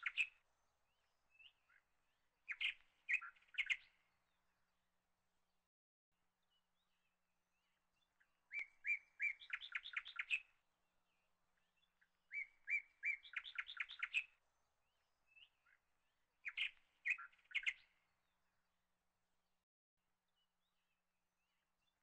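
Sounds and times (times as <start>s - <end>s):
songbird singing: 0.0s - 4.9s, 6.3s - 18.8s.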